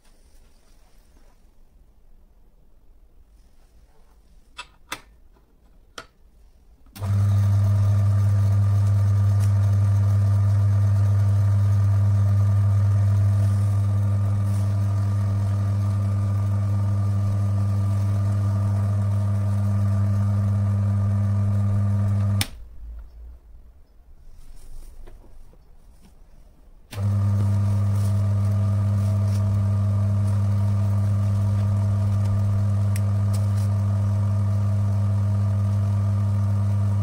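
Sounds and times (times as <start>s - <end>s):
electric motor humming: 7.0s - 22.6s, 26.9s - 37.0s.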